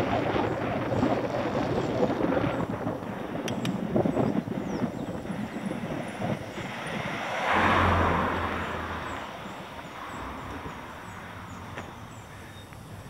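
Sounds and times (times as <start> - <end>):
road noise: 0.0 - 13.0
car passing by: 5.4 - 12.4.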